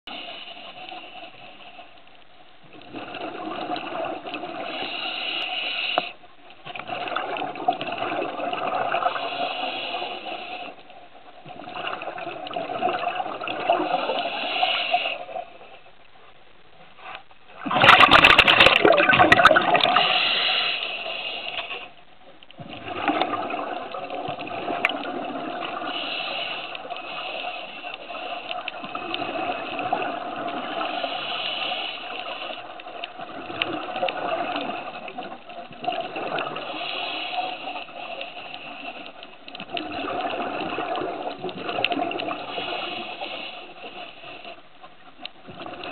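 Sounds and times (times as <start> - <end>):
diver breathing through regulator: 4.6 - 6.2, 9.1 - 10.8, 13.7 - 15.4, 19.8 - 21.9, 25.8 - 28.5, 30.7 - 32.6, 36.6 - 39.2.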